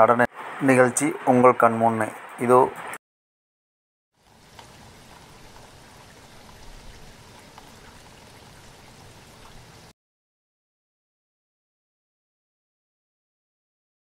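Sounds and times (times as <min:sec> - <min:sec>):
outdoor background hiss: 0:00.0 - 0:03.0, 0:04.2 - 0:09.9.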